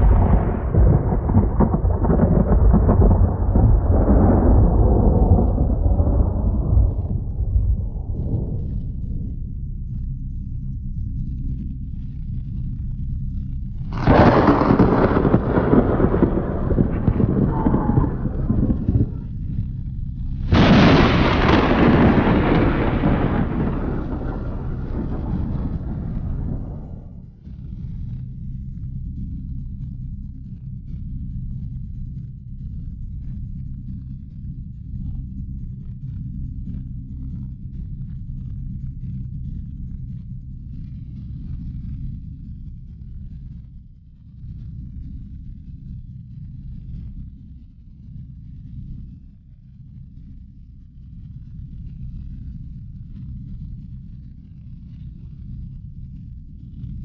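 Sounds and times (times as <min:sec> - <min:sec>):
loud boom: 0:00.0 - 0:09.2, 0:14.0 - 0:19.5, 0:20.5 - 0:27.4
deep rolling rumble with crackling: 0:00.0 - 0:57.0.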